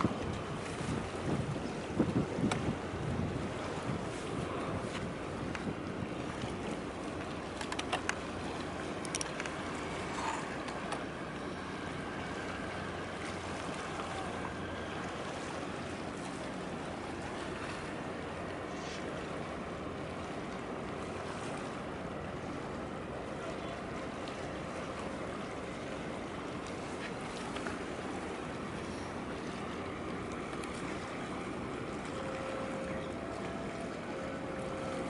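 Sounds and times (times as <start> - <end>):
harbour water wash: 0.0 - 35.0
low hum: 27.4 - 35.0.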